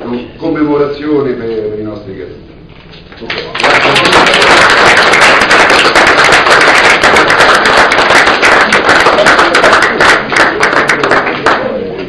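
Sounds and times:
audience applauding: 0:03.3 - 0:11.8.

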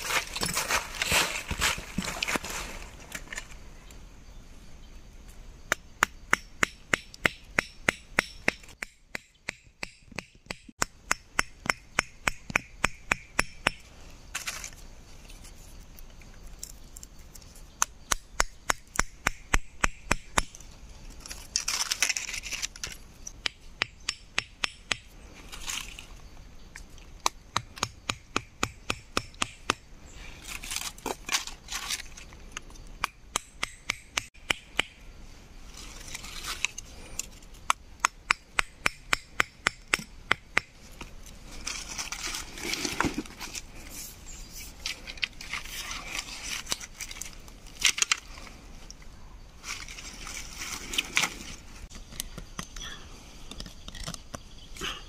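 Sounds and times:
handling rustles: 0:00.0 - 0:03.6
machete striking wooden stick: 0:18.1 - 0:20.5, 0:27.2 - 0:29.8, 0:33.0 - 0:35.0.

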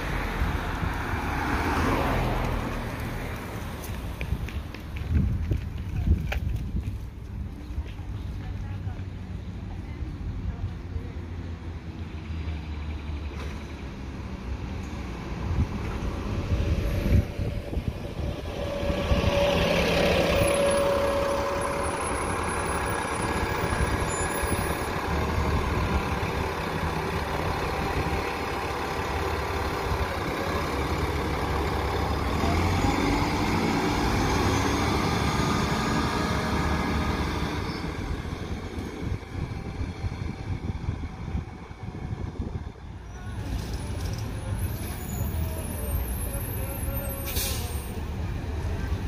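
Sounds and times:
bus engine pulling away: 0:00.0 - 0:49.0
bus air brake hiss: 0:47.1 - 0:48.0.

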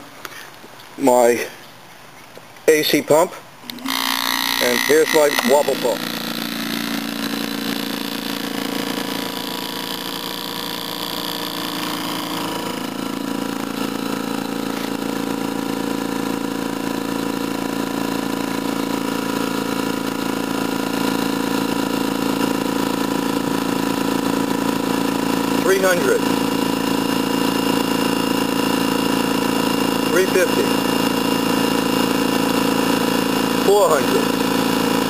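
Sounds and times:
compressors humming: 0:03.6 - 0:35.0
high whine: 0:03.7 - 0:20.6.

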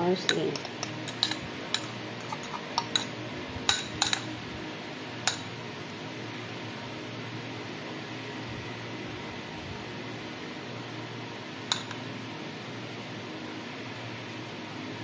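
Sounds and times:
low background hum: 0:00.0 - 0:15.0
fork clinking against glass bowl: 0:00.3 - 0:04.3, 0:05.3 - 0:05.6, 0:11.7 - 0:12.0.

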